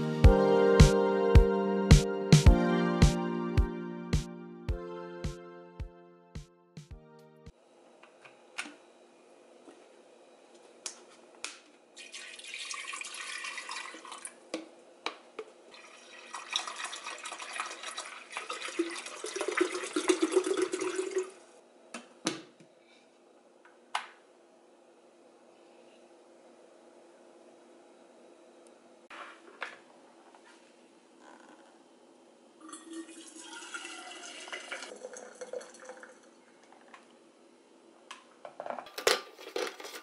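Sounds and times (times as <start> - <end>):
water pouring into kettle: 12.0 - 14.4, 15.7 - 21.4, 32.6 - 37.1.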